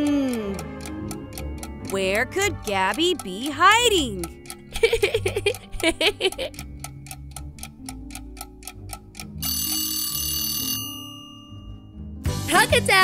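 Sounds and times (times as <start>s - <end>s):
kitchen timer ticking: 0.0s - 11.9s
timer bell ringing: 9.4s - 12.3s.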